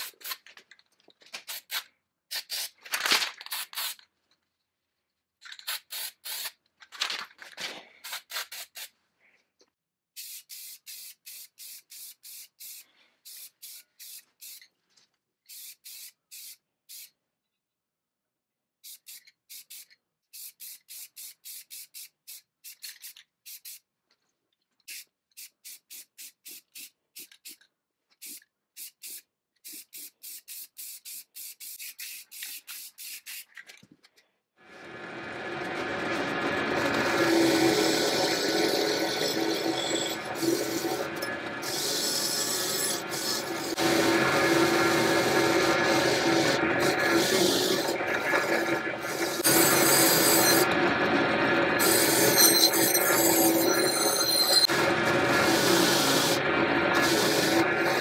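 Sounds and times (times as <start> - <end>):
spray paint can hissing: 1.4 - 2.8, 3.5 - 4.0, 5.6 - 6.6, 8.0 - 8.9, 10.2 - 14.7, 15.5 - 17.2, 18.8 - 23.8, 24.9 - 27.6, 28.2 - 33.5, 40.3 - 50.7, 54.6 - 58.0.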